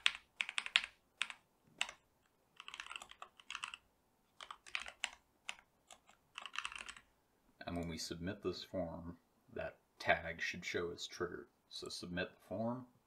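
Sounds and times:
typing on computer keyboard: 0:00.0 - 0:02.0, 0:02.6 - 0:03.8, 0:04.4 - 0:07.1.

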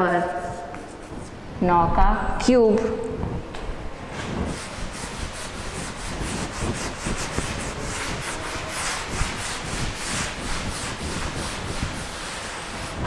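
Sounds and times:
duster rubbing on blackboard: 0:00.0 - 0:01.4, 0:04.1 - 0:13.0.

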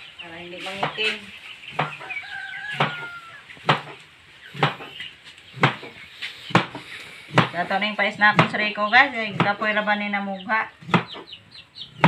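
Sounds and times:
chicken calling: 0:00.0 - 0:08.0.

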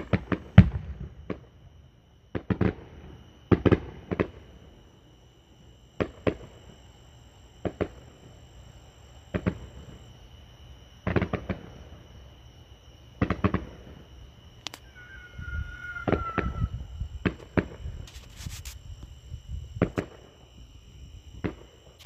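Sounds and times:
distant fireworks bursting: 0:00.0 - 0:01.7, 0:02.3 - 0:04.7, 0:06.0 - 0:06.9, 0:07.6 - 0:08.4, 0:09.3 - 0:10.1, 0:11.0 - 0:12.0, 0:13.2 - 0:14.1, 0:15.6 - 0:18.8, 0:19.8 - 0:20.4, 0:21.4 - 0:22.0.

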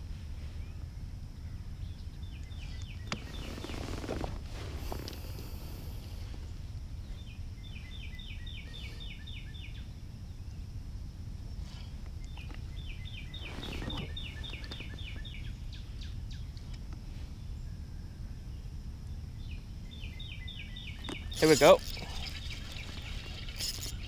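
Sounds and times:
low rumble of wind: 0:00.0 - 0:24.0
songbird trilling chirps: 0:00.6 - 0:04.2, 0:07.0 - 0:10.7, 0:11.8 - 0:24.0
brief rustle: 0:13.4 - 0:15.1.

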